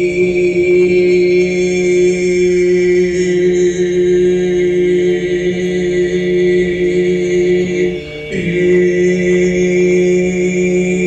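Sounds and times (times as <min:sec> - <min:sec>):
chant-like vocal drone: 0:00.0 - 0:11.0.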